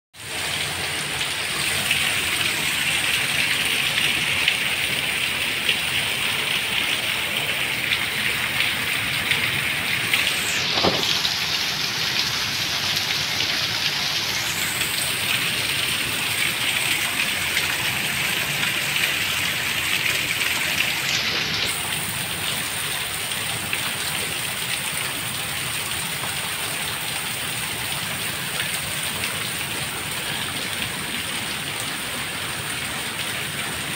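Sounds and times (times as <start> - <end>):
heavy rain on paving: 0.2 - 33.9.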